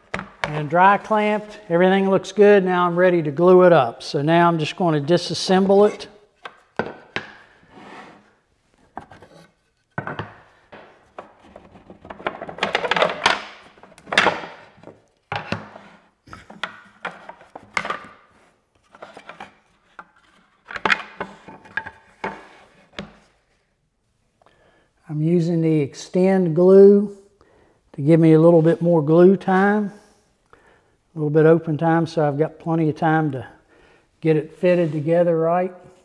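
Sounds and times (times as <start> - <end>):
wood knocking and clattering: 6.4 - 7.5, 9.9 - 15.7.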